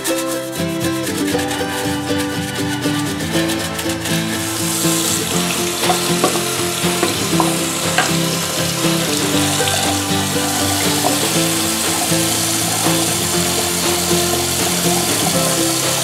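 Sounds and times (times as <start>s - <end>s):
background music: 0.0s - 16.0s
tap running into sink: 4.4s - 16.0s.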